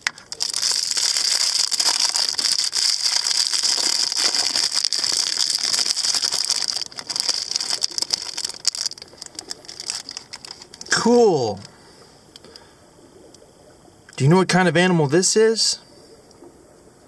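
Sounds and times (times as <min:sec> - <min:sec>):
foil wrapper crinkling: 0:00.1 - 0:10.9.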